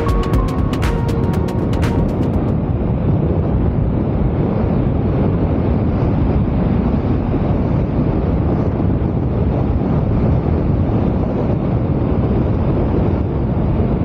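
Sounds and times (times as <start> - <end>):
music: 0.0 - 2.7
wind rushing over microphone: 0.0 - 14.0.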